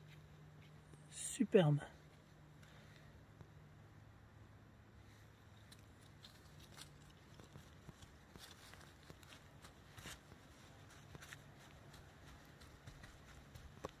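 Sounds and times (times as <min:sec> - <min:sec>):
dry leaves and twigs crackling: 0:05.2 - 0:14.0.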